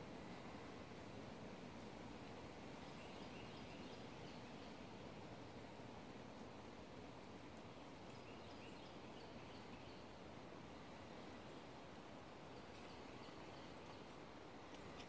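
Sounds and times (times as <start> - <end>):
faint woodland ambience: 0.0 - 15.0
faint clicks: 14.6 - 15.0.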